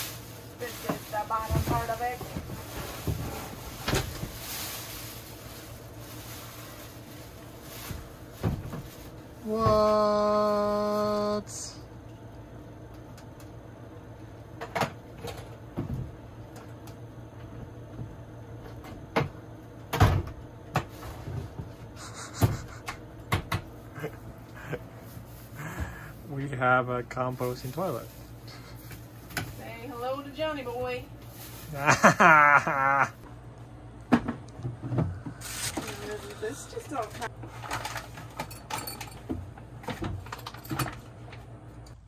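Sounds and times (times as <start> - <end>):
plastic bag rustling and crinkling: 0.0 - 9.7, 24.0 - 32.7, 35.4 - 38.5.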